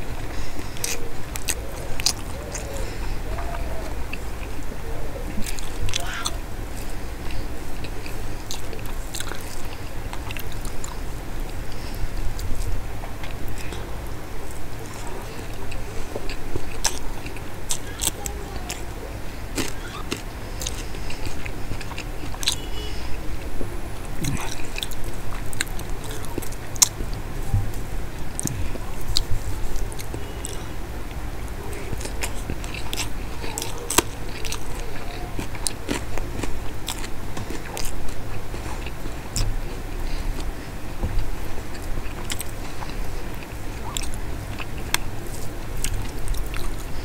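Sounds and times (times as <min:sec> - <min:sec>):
steady low hum: 0:00.0 - 0:47.0
wet chewing: 0:00.0 - 0:47.0
wet mouth clicks: 0:00.3 - 0:04.5, 0:05.3 - 0:13.9, 0:41.7 - 0:47.0.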